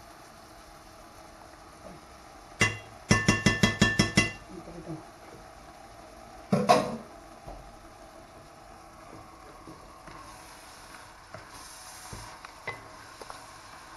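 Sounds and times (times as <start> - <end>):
metal spoon clinking on pan: 2.6 - 4.4.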